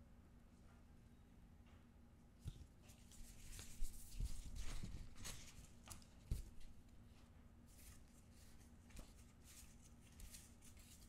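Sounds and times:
cards rustling and sliding: 2.5s - 6.8s, 7.7s - 11.0s.

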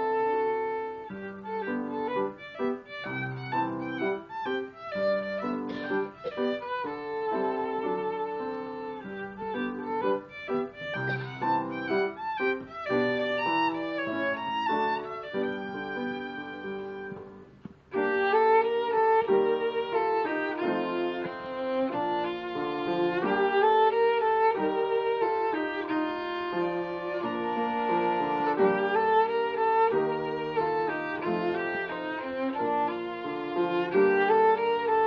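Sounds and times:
bowed violin fast run: 18.0s - 35.0s.

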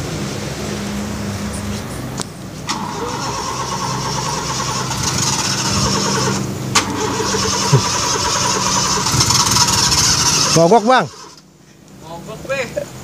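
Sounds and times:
car starter motor cranking: 2.7s - 11.5s.

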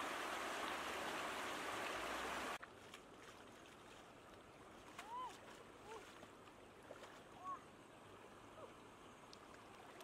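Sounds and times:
stream rushing over rocks: 0.0s - 10.0s
feet wading in water: 2.6s - 7.6s.

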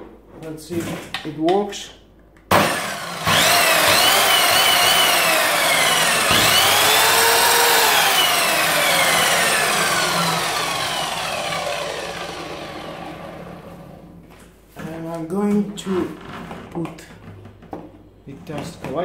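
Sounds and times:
mitre saw motor whine: 2.6s - 14.0s.

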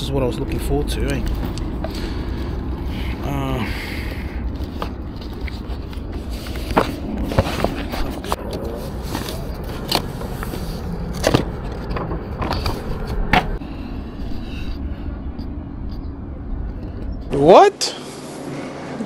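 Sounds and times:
steady low rumble: 0.0s - 18.8s
objects clicking and scraping: 4.4s - 13.6s.

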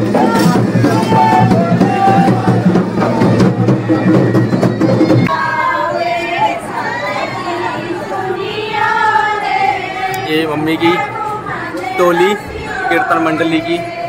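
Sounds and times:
drum-driven procession music: 0.0s - 6.2s
crowd voices: 0.0s - 14.0s
people singing: 0.0s - 14.0s.

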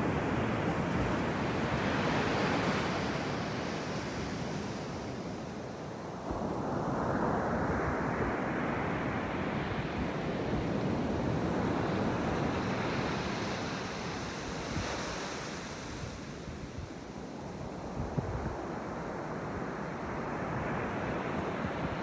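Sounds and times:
wind buffeting microphone: 6.2s - 19.6s.

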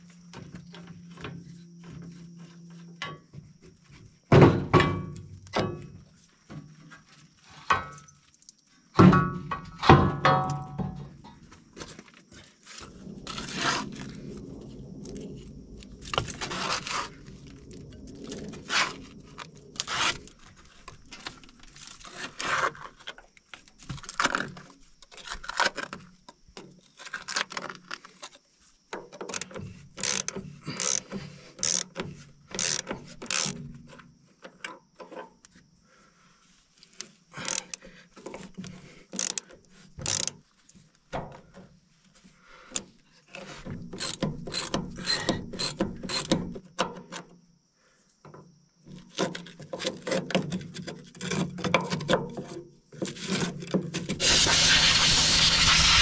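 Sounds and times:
ratchet wrench clicking: 30.0s - 31.0s, 31.6s - 32.0s, 32.6s - 33.5s, 40.0s - 40.3s.

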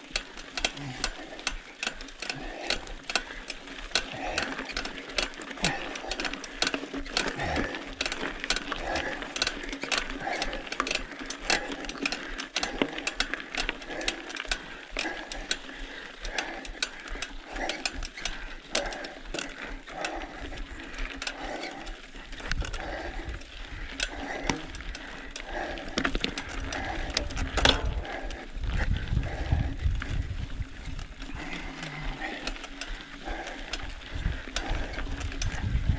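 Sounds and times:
bike clicking and rattling: 0.0s - 35.9s
wind buffeting microphone: 26.6s - 31.5s, 34.0s - 35.9s.

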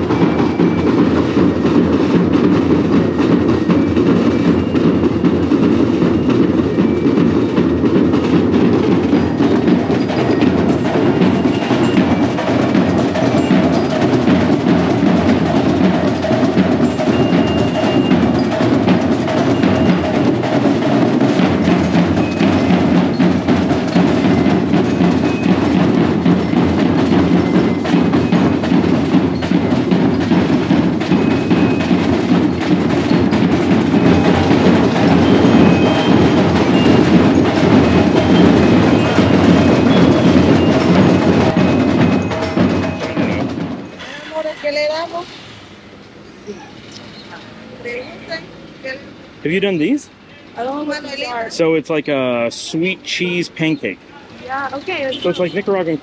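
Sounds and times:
high bell notes: 0.0s - 44.6s
marching band drumming: 0.0s - 56.0s.

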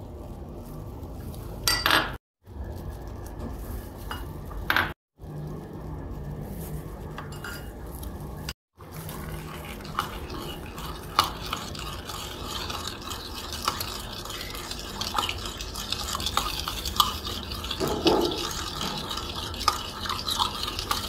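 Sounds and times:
liquid swishing: 7.9s - 21.0s.

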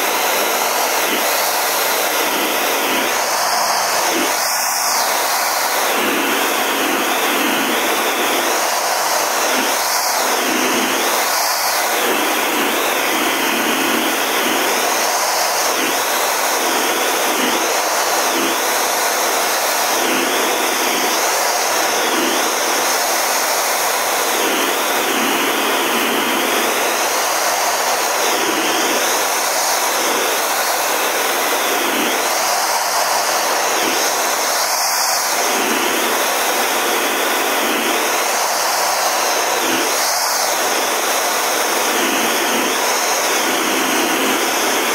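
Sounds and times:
high wavering whine: 0.0s - 44.9s
jet engine roar: 0.0s - 44.9s
rushing air in cockpit: 0.0s - 44.9s.

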